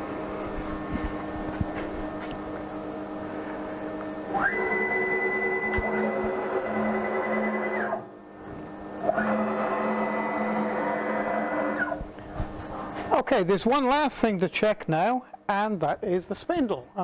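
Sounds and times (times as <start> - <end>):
stepper motor whine: 0.0 - 12.2
low electrical hum: 0.0 - 17.0.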